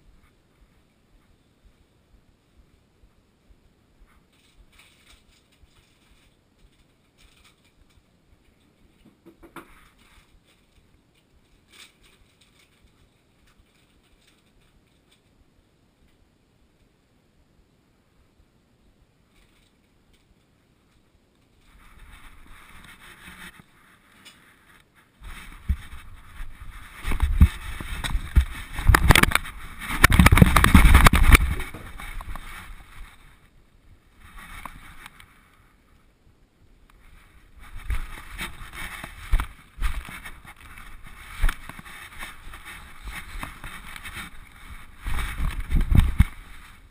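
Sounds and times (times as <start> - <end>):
faint rustling: 0.0 - 15.4, 19.2 - 46.9
camera bumping and knocking: 25.3 - 32.6, 45.0 - 46.4.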